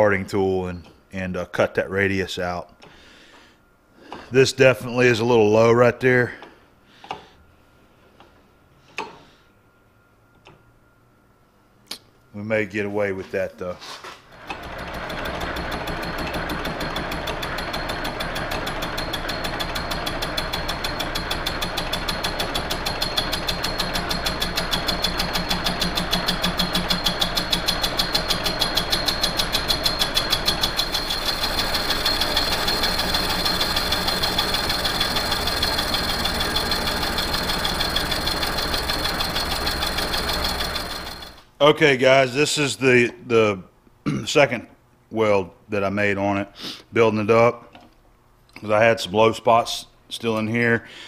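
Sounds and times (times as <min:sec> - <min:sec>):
high machine whine: 0:14.3 - 0:41.5
lathe cutting metal: 0:14.4 - 0:41.4.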